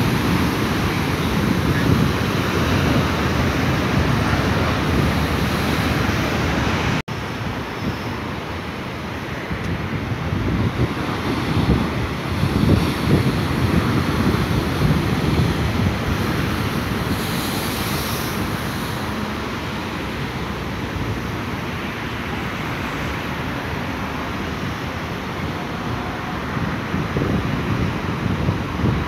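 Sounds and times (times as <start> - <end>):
wind on microphone: 0.0 - 8.4, 9.2 - 21.4, 23.7 - 29.0
hiss of spray: 17.1 - 19.3.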